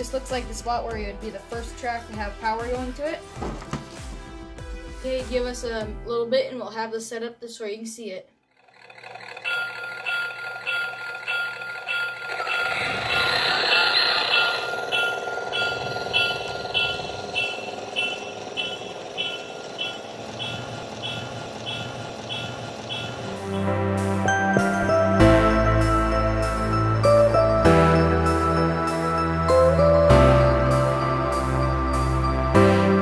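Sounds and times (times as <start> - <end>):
toy train wheels rumbling on track: 8.5 - 25.0
toy train bell ringing: 8.7 - 32.6.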